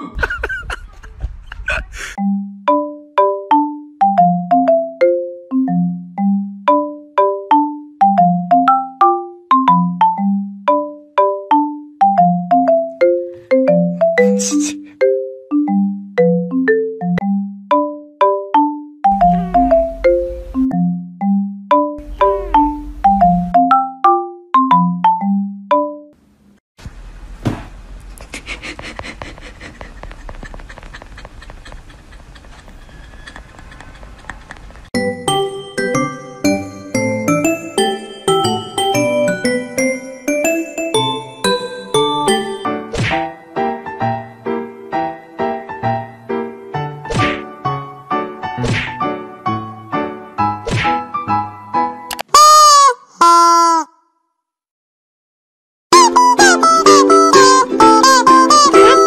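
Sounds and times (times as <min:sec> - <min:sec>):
bouncy marimba-like music: 0:02.2 - 0:26.2, 0:35.0 - 0:42.9, 0:55.9 - 0:59.0.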